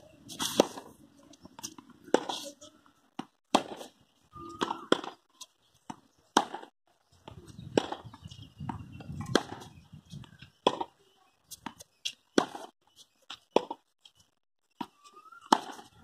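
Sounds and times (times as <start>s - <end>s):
tennis ball struck by rackets: 3.2s - 3.9s, 4.5s - 5.2s, 5.9s - 6.7s, 7.7s - 8.1s, 8.7s - 9.7s, 10.6s - 11.0s, 14.8s - 15.9s
tennis ball bouncing on court: 4.5s - 5.2s, 5.9s - 6.7s, 7.7s - 9.7s.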